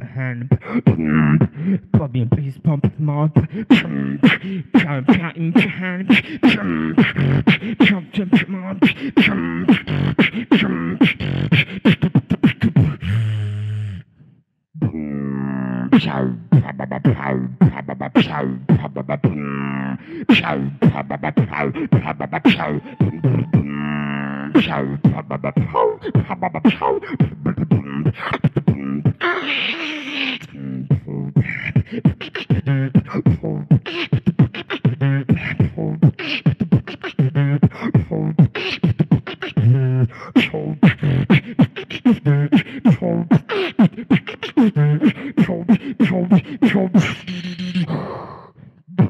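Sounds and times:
beatboxing kick and snare clicks: 3.4 - 13.0, 31.4 - 39.7, 40.4 - 47.3
humming bass tones: 20.4 - 26.7.

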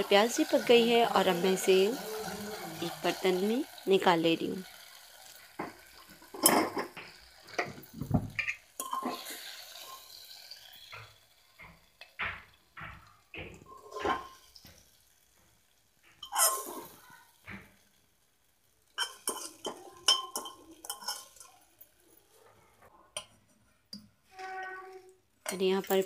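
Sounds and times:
metal spoon scraping a pan: 4.6 - 11.0, 13.5 - 14.6, 16.2 - 17.9, 18.8 - 21.8.

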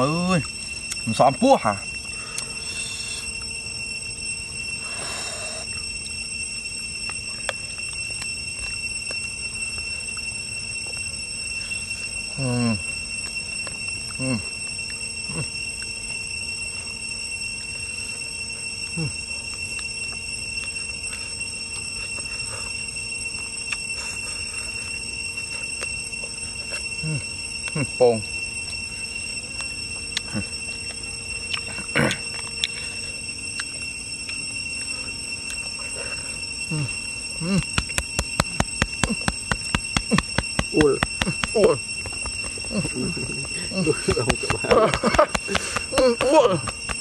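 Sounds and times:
high-pitched whine: 0.0 - 47.0
night insects trilling: 0.0 - 47.0
man chewing and sucking meat: 4.7 - 12.3, 17.6 - 27.8, 28.6 - 47.0
man humming mm: 36.7 - 38.0
sharp crackles: 37.4 - 47.0.

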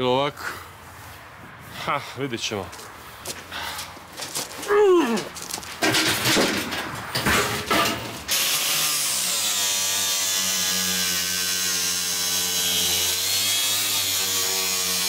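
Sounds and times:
knocks and clatter: 4.2 - 8.3.

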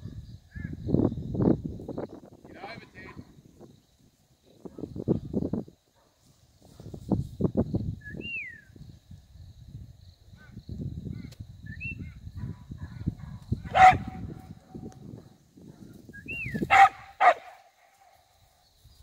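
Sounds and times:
dog barking: 6.0 - 6.9, 12.4 - 14.3, 16.7 - 17.7.

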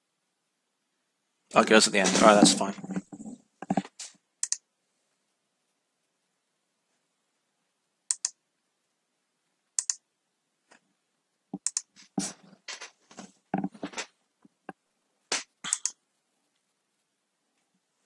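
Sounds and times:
keyboard keys clicking: 8.1 - 8.4, 9.8 - 10.0, 11.6 - 11.9.

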